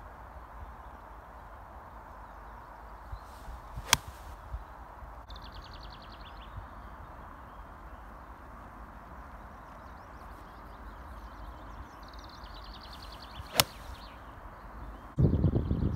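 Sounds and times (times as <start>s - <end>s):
golf club swish: 3.3s - 4.4s, 12.9s - 14.2s
sharp crack of golf strike: 3.4s - 4.4s, 12.9s - 14.2s.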